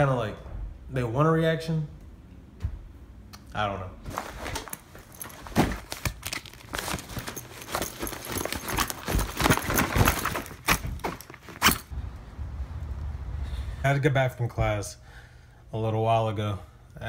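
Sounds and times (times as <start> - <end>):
rustling cloth and papers: 4.0 - 11.9
zipper pulls and buckles clinking: 4.2 - 11.9.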